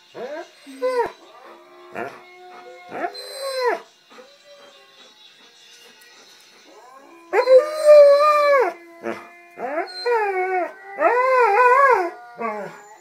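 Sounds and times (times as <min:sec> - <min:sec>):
music: 0:00.0 - 0:13.0
dog howling: 0:00.7 - 0:03.8, 0:06.9 - 0:13.0.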